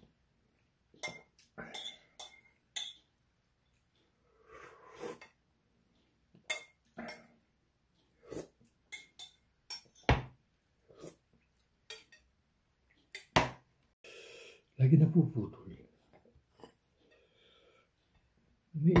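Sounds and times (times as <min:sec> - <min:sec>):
metal spoon clinking on glass bowl: 0:01.0 - 0:03.1, 0:06.5 - 0:07.3, 0:08.9 - 0:10.2, 0:11.9 - 0:12.3
slurping broth: 0:04.4 - 0:05.4, 0:08.2 - 0:08.6.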